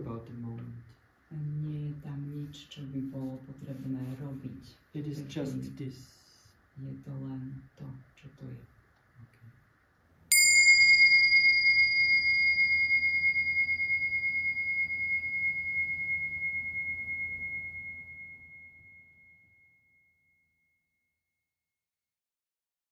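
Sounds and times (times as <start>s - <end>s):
singing bowl ringing: 10.3s - 20.7s.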